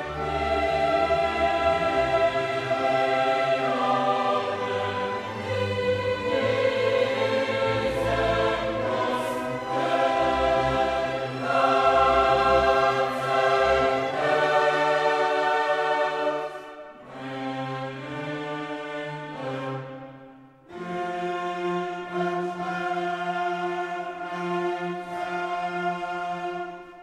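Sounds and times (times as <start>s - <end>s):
choir singing held chords: 0.0s - 21.2s
orchestral backing: 0.0s - 27.0s.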